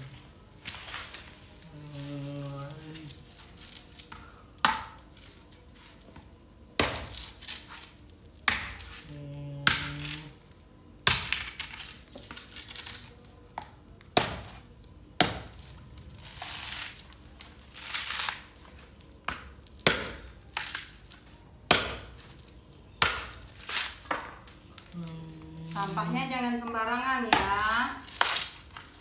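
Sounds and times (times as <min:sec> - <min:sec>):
chilies crinkling and snapping: 0:00.0 - 0:29.0
person humming: 0:01.6 - 0:03.3, 0:09.0 - 0:10.4, 0:24.8 - 0:27.7.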